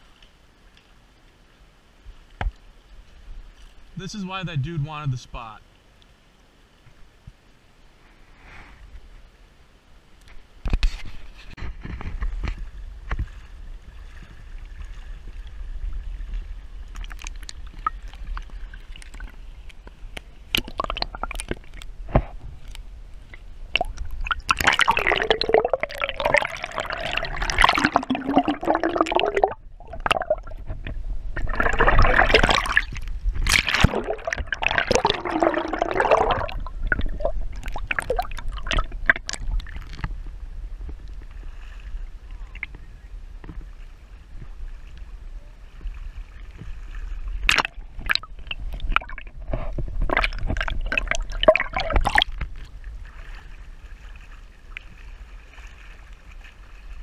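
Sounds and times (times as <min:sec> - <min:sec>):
water splashing: 0:12.1 - 0:42.9, 0:43.5 - 0:57.0
underwater bubbling gurgle: 0:13.2 - 0:43.5, 0:44.3 - 0:57.0.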